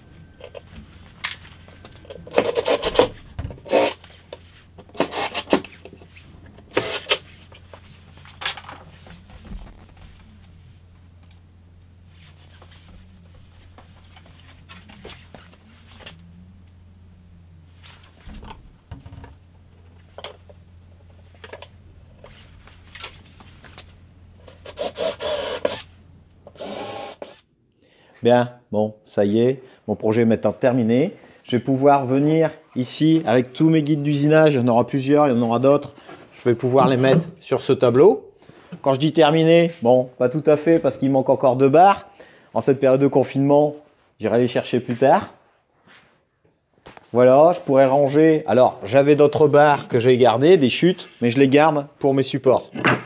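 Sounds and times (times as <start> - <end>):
low steady hum: 0.0 - 46.0
cordless drill driving screws: 2.3 - 4.0, 4.9 - 5.7, 6.7 - 7.2, 24.6 - 25.9, 26.5 - 27.4.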